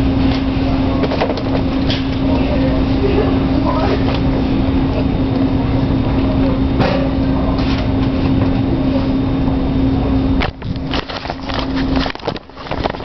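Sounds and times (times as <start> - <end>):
camera handling rustles and knocks: 10.4 - 13.0.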